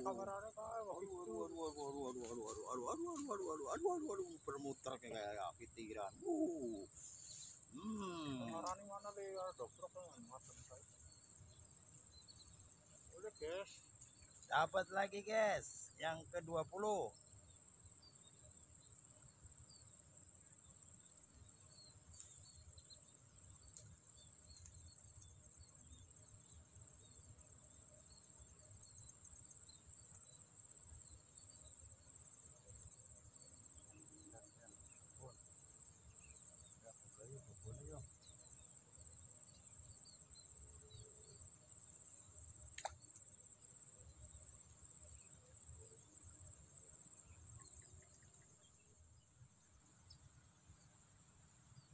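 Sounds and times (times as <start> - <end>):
insect trilling: 0.0 - 17.3, 21.5 - 26.1.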